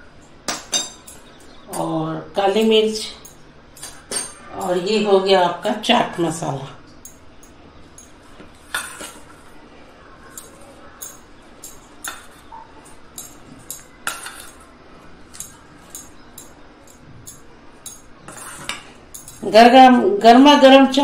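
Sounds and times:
spoon clinking and scraping bowl: 0:02.6 - 0:04.9, 0:07.0 - 0:09.5, 0:10.2 - 0:19.6.

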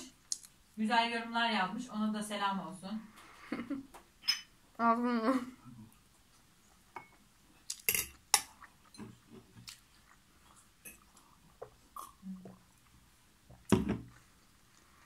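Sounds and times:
soft chewing and mouth clicks: 0:00.0 - 0:00.8, 0:05.6 - 0:15.0
metal fork clinking on dishes: 0:04.2 - 0:04.5, 0:07.9 - 0:08.5.

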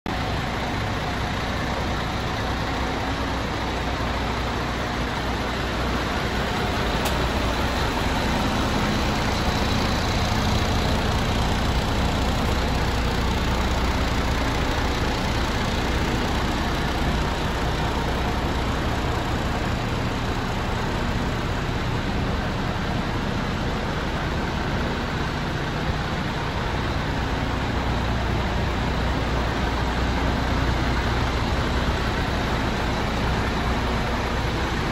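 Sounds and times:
truck diesel engine idling: 0:00.1 - 0:34.9.

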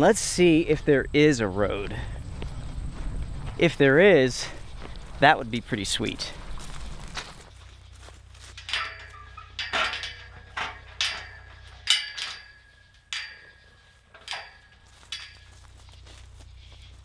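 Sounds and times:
metal gate clanking and ringing: 0:08.4 - 0:16.2.

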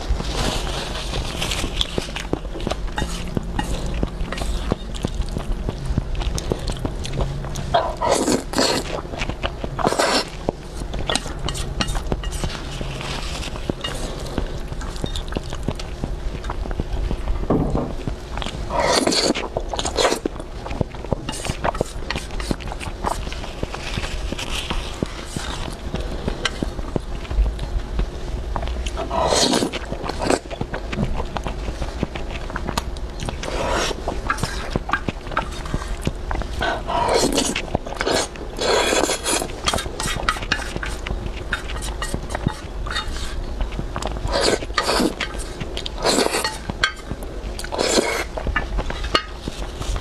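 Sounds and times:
chewing noodles: 0:00.0 - 0:17.3, 0:18.1 - 0:50.0
chopsticks stirring in metal bowl: 0:00.2 - 0:05.4, 0:11.0 - 0:14.2, 0:36.6 - 0:43.5, 0:44.3 - 0:50.0
wet chewing and lip-smacking: 0:01.8 - 0:12.7, 0:13.5 - 0:17.3
noodle slurp: 0:07.8 - 0:09.0, 0:09.8 - 0:10.4, 0:29.0 - 0:30.5, 0:36.6 - 0:41.0, 0:44.3 - 0:45.3, 0:45.9 - 0:46.6, 0:47.6 - 0:48.3.

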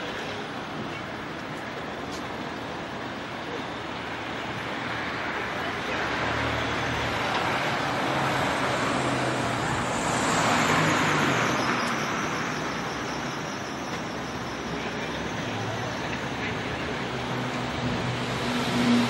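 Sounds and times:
vehicle passing by: 0:17.7 - 0:19.0.

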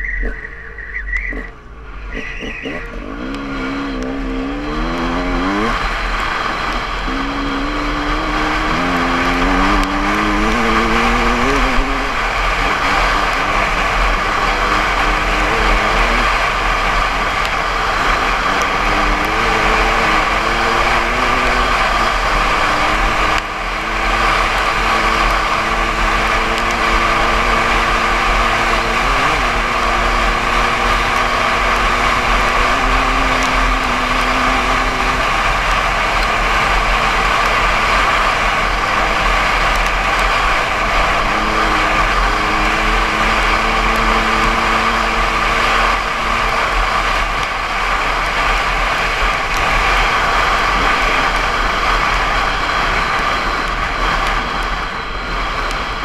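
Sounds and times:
dirt bike engine: 0:00.0 - 0:56.0
wind rushing on microphone: 0:01.2 - 0:56.0.

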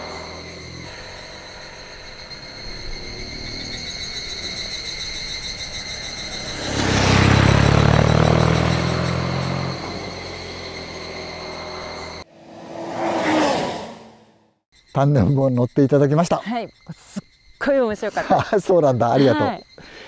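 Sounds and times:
insects buzzing: 0:00.0 - 0:14.1, 0:14.7 - 0:20.0
motorcycle passing by: 0:05.6 - 0:14.6.

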